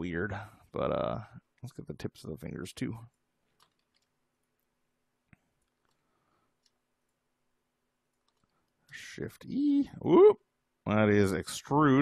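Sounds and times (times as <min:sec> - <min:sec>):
computer mouse click: 0:03.6 - 0:04.1, 0:05.3 - 0:06.0, 0:06.6 - 0:07.2, 0:08.1 - 0:08.8.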